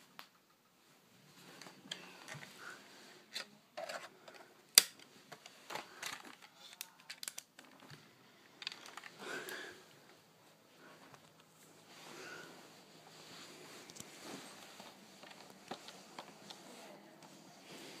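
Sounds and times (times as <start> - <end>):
fabric rustling: 10.1 - 18.0.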